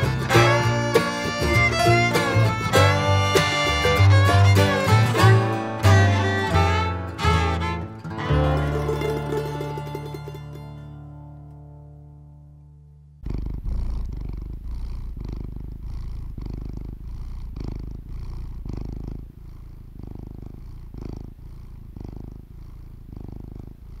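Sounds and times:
cat purring: 0:00.0 - 0:06.0, 0:12.9 - 0:24.0.

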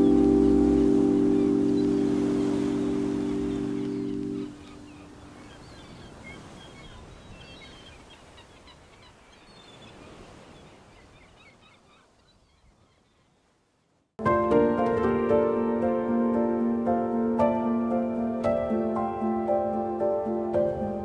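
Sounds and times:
held music chord: 0:00.0 - 0:04.9, 0:14.2 - 0:21.0
small birds chirping: 0:00.0 - 0:13.5.

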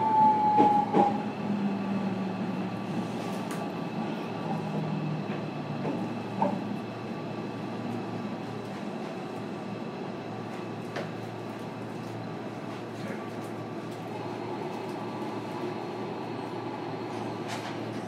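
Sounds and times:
electric train humming: 0:00.0 - 0:18.0.

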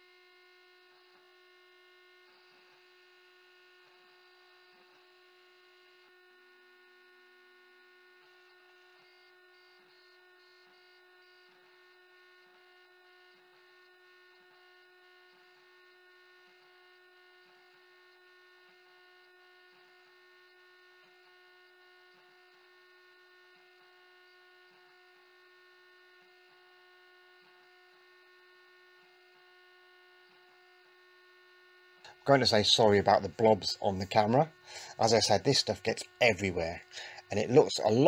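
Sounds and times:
faint router spindle hum: 0:00.0 - 0:38.0.

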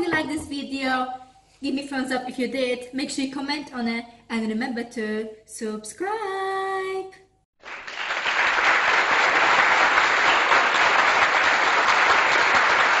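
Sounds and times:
crowd applause: 0:07.6 - 0:13.0.

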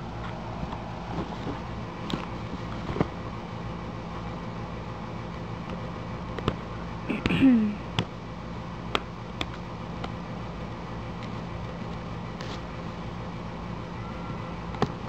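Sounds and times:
steady background hum: 0:00.0 - 0:15.0
cardboard clicks and taps: 0:06.4 - 0:06.6.

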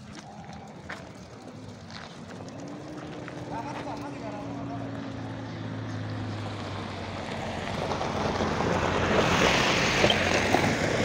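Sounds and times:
sheep hooves trampling on dirt: 0:00.0 - 0:08.7.

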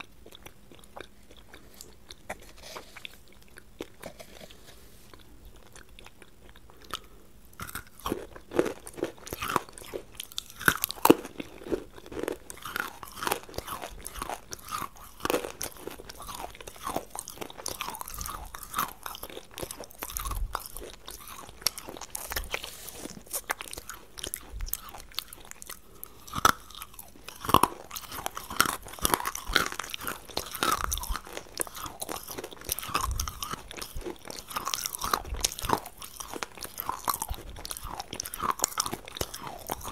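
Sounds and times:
chewing hard crunchy lumps: 0:00.0 - 0:39.9.

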